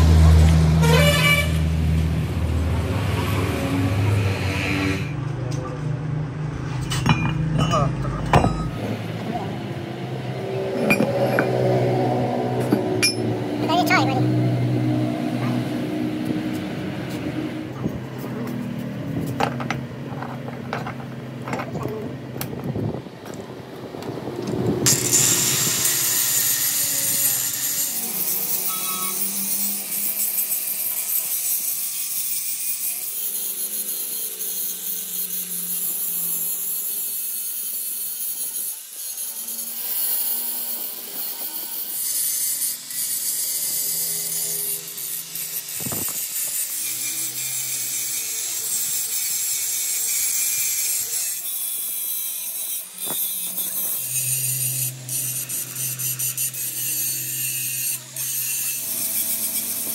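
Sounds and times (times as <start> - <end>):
grinder motor hum: 0.0 - 59.9
grinder disc rasping on metal: 3.5 - 22.0, 24.8 - 59.9.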